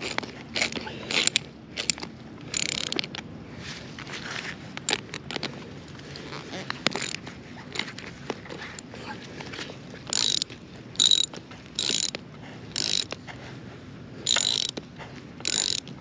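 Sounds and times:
jack ratcheting: 0.0 - 3.2, 6.8 - 8.0, 10.1 - 13.2, 14.2 - 14.8, 15.4 - 16.0.

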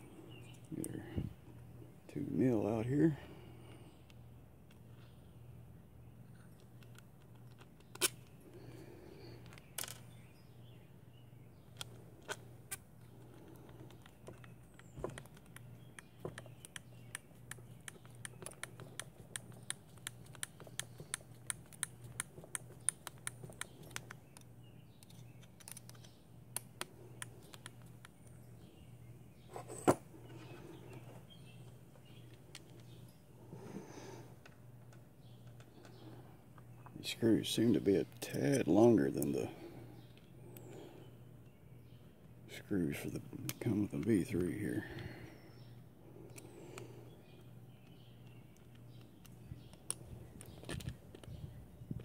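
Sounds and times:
hex driver clicking on screws: 13.4 - 28.4.

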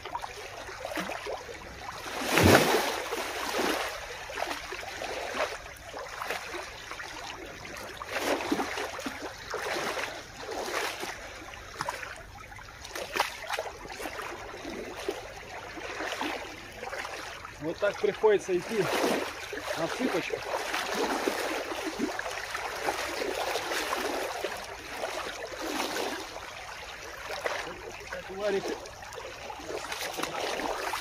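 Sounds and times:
sea water splashing on rocks: 2.1 - 4.0, 18.4 - 24.9, 27.2 - 31.0.

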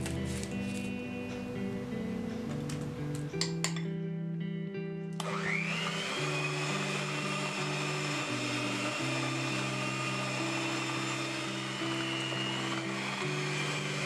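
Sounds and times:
electric hand mixer whine: 5.2 - 14.0.

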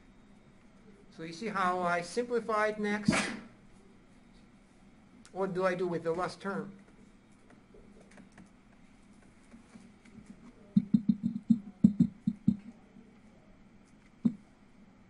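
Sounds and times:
stylus tapping on glass screen: 10.8 - 12.7.

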